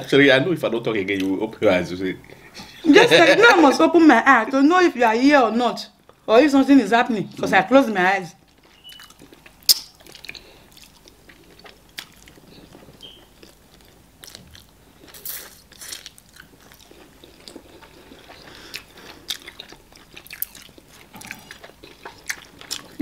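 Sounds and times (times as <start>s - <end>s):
people chewing food: 8.4s - 23.0s.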